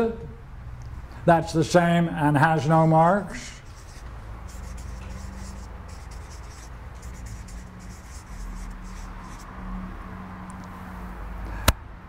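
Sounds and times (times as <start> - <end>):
steady low hum: 2.4 - 9.6
marker writing on paper: 3.5 - 9.5.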